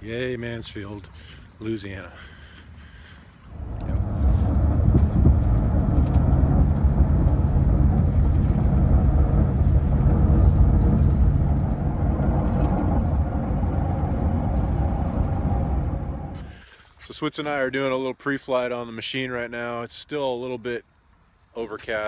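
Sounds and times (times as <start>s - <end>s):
car engine and road rumble: 3.4s - 16.7s.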